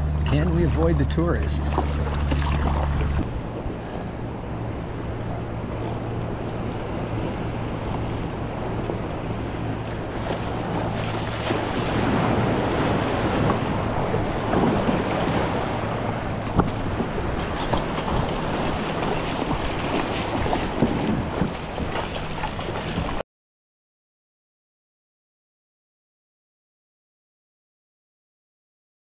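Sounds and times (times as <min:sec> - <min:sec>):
surf breaking: 0:00.0 - 0:23.2
water splashing around kayak: 0:00.0 - 0:23.2.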